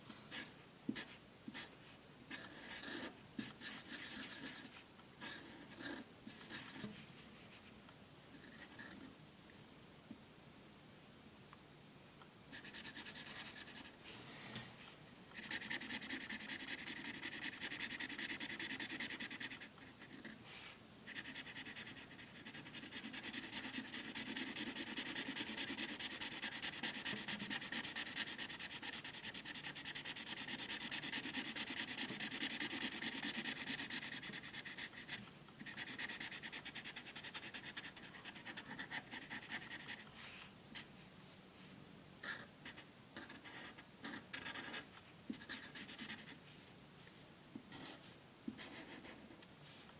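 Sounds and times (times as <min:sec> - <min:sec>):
marker scribbling on paper: 0:00.3 - 0:01.7, 0:02.3 - 0:07.0, 0:12.5 - 0:13.9, 0:15.4 - 0:40.0, 0:42.2 - 0:46.4, 0:47.7 - 0:49.2.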